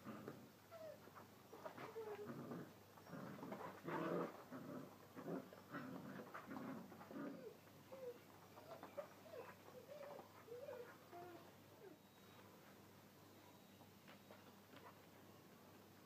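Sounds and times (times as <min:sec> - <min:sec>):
puppies whining: 0:07.0 - 0:12.4.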